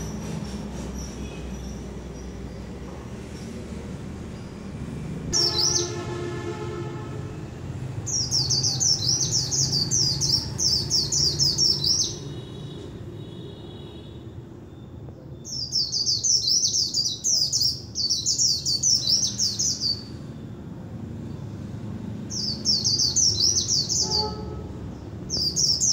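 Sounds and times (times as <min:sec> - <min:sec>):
bird twittering: 0:05.4 - 0:06.0.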